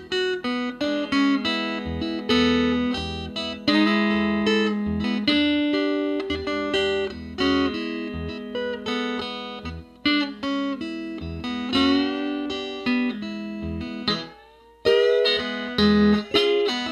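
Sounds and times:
resonator guitar blues licks: 0:00.0 - 0:16.9.

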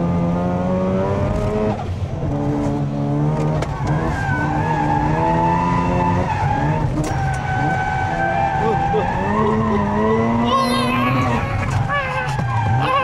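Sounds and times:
car engine at high revs: 0:00.0 - 0:13.0
tyres squealing: 0:10.4 - 0:13.0.

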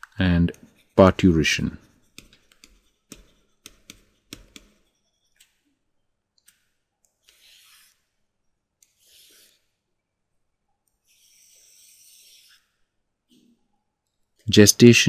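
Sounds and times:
stylus scratching strokes: 0:00.4 - 0:05.7, 0:06.6 - 0:08.2, 0:08.8 - 0:09.8, 0:10.9 - 0:13.6
stylus tapping on pen tablet: 0:02.1 - 0:04.8.

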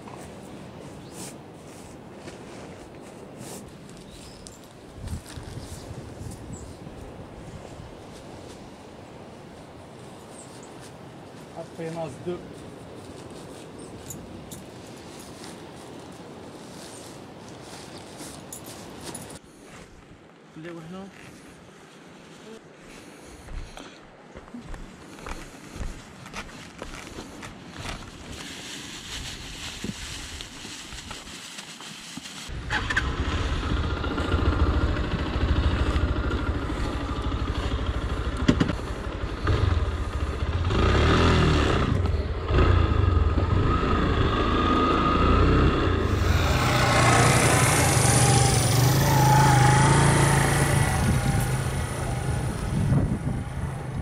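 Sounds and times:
motorcycle engine running: 0:32.5 - 0:45.0, 0:45.8 - 0:54.0.

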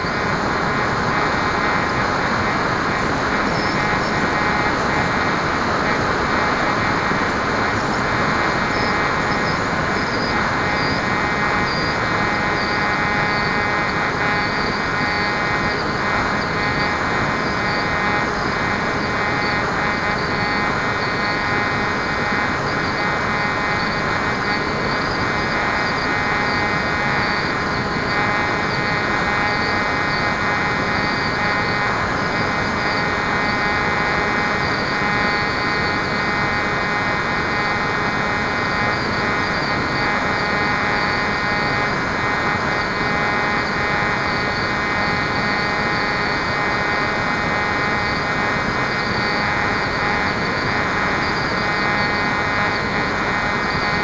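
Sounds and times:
model plane motor and propeller drone: 0:00.1 - 0:54.0.

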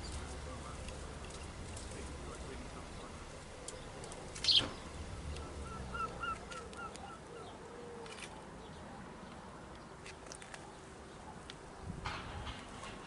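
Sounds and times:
short bird calls: 0:04.4 - 0:04.8.

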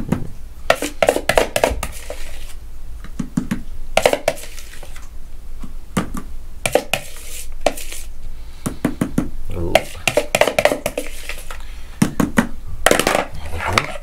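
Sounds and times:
spoon scraping a plastic bowl: 0:00.7 - 0:02.6, 0:04.0 - 0:05.1, 0:06.6 - 0:08.1, 0:09.8 - 0:11.6, 0:13.3 - 0:14.0.

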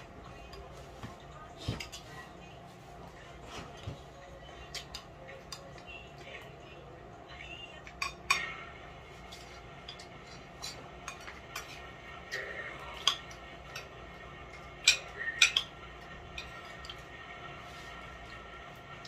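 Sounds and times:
spoons clinking on plate and tray: 0:09.3 - 0:11.8, 0:12.8 - 0:17.0.

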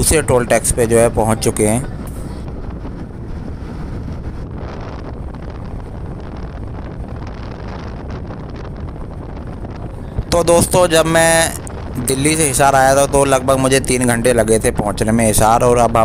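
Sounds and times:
road and running noise: 0:00.0 - 0:16.0
wind rushing over microphone: 0:00.0 - 0:16.0.

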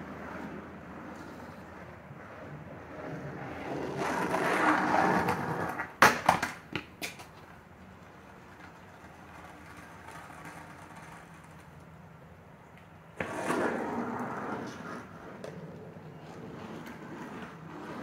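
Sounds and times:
skateboard wheels rolling on concrete: 0:00.0 - 0:18.0
skateboard clacking on concrete: 0:03.0 - 0:12.0, 0:12.7 - 0:18.0.

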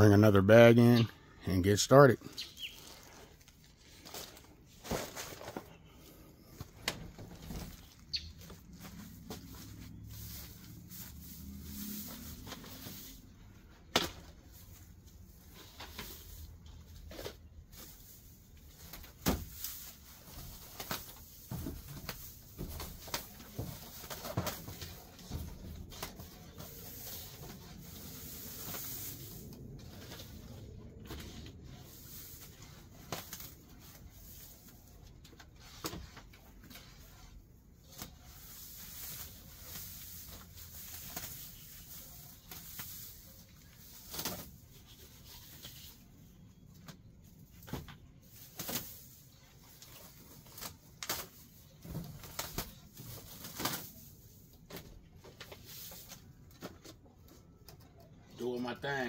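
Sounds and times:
grass rustling and crackling: 0:00.1 - 0:46.3.

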